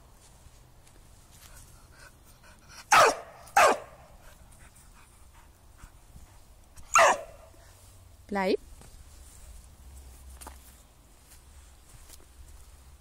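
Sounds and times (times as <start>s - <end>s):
dog barking: 2.9s - 4.0s, 6.9s - 7.5s.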